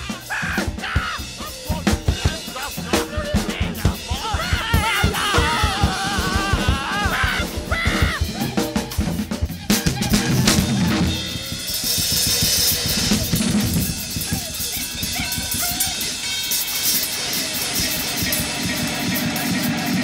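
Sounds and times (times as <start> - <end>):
experimental rock music: 0.0 - 20.0
rapid dense percussion hits: 0.0 - 20.0.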